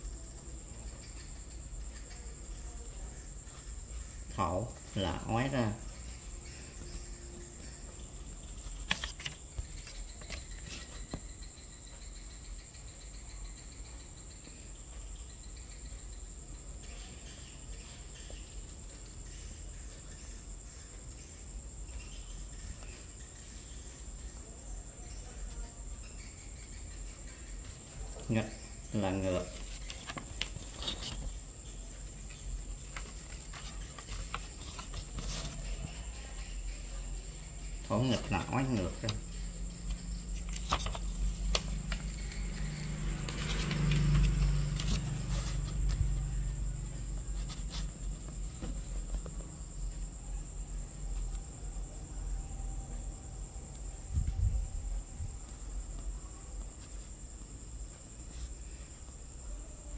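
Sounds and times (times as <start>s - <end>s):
faint clicks and rustles: 29.4s - 36.3s, 38.2s - 50.2s.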